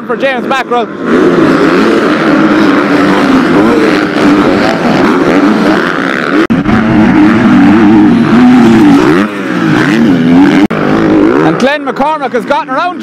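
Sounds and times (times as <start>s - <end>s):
motocross bike engines revving: 0.0s - 13.0s.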